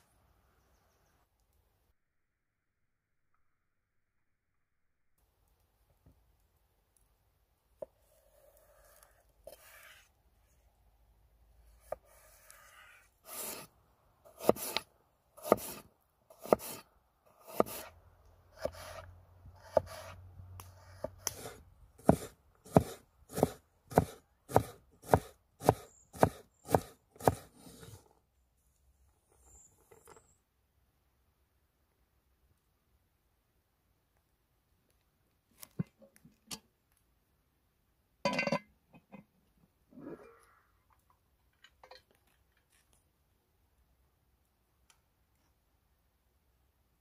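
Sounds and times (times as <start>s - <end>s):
knife cutting and scraping: 8.0s - 10.2s, 11.7s - 13.7s, 14.3s - 17.9s, 18.6s - 28.1s
knife chopping on wooden board: 14.4s - 14.8s, 15.4s - 15.8s, 16.4s - 16.8s, 17.4s - 17.9s, 18.6s - 19.0s, 19.6s - 20.2s, 20.8s - 27.9s.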